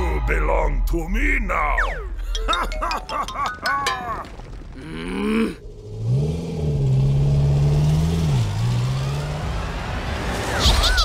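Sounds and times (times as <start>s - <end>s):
vehicle engine revving: 5.6s - 10.6s.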